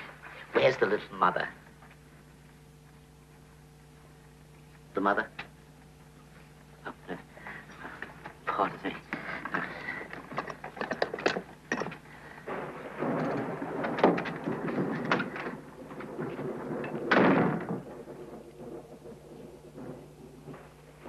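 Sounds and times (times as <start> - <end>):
knocks and thuds: 10.2 - 21.0.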